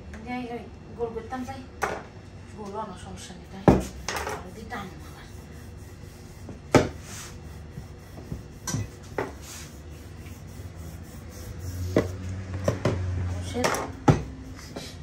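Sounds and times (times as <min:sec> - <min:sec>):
rolling pin rubbing on dough: 0:03.8 - 0:12.4.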